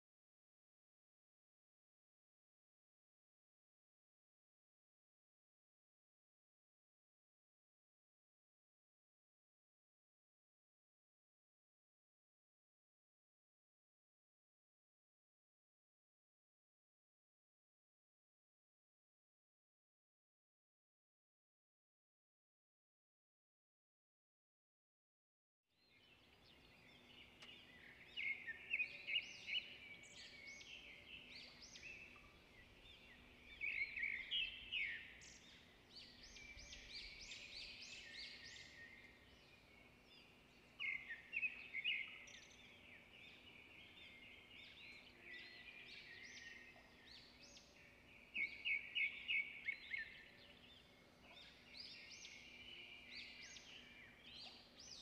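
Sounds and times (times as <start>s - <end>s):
small birds singing: 25.7s - 55.0s.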